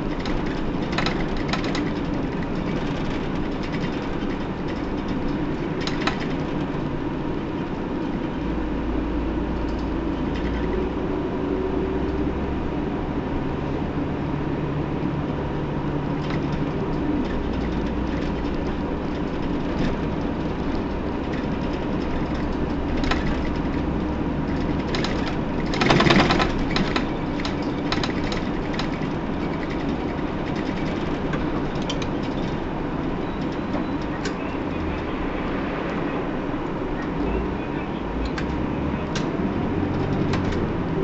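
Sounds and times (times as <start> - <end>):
bus engine drone: 0.0 - 41.0
road noise: 0.0 - 41.0
rattling clicks: 0.1 - 6.7, 24.5 - 32.6.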